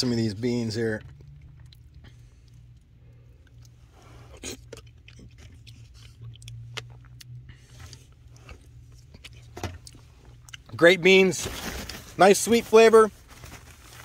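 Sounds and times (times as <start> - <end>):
person chewing: 1.0 - 10.8.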